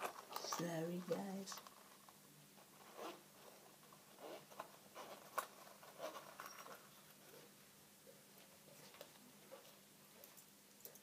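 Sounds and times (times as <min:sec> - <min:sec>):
small object clicking and scratching: 0:00.0 - 0:07.5.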